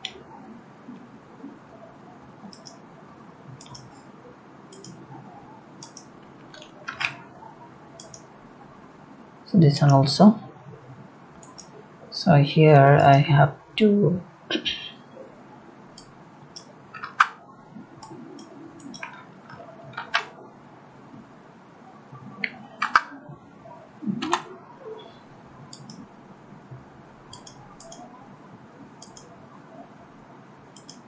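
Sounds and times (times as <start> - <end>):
keyboard and mouse clicks: 2.4 - 2.8, 3.6 - 4.1, 4.7 - 5.0, 5.8 - 7.3, 8.0 - 8.3, 11.4 - 11.7, 16.0 - 17.4, 18.0 - 20.4, 22.4 - 23.2, 24.2 - 24.5, 25.7 - 26.0, 27.3 - 28.1, 29.0 - 29.3, 30.8 - 31.0.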